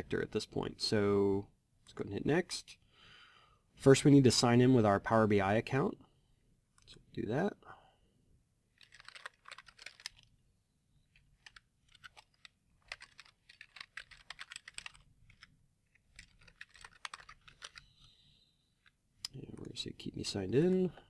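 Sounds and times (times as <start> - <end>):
typing on a keyboard: 8.8 - 10.2, 11.4 - 15.5, 16.1 - 17.8.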